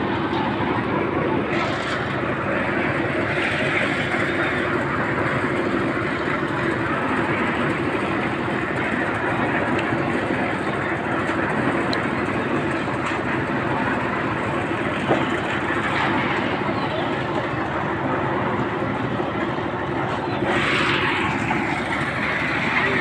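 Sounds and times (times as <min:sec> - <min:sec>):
concrete mixer running: 0:00.0 - 0:23.0.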